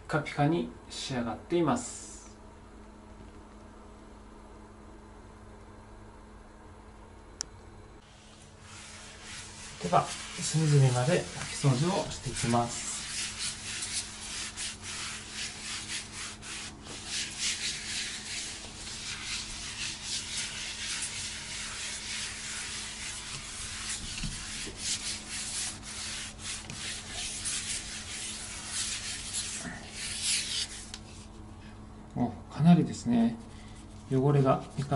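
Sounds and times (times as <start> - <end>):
cloth scrubbing floor: 8.0 - 31.4.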